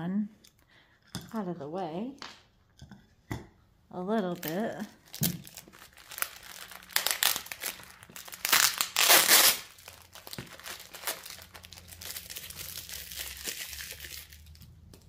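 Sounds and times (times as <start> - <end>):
plastic packaging crinkling: 4.2 - 15.0
wrapping tearing rasp: 4.4 - 14.7.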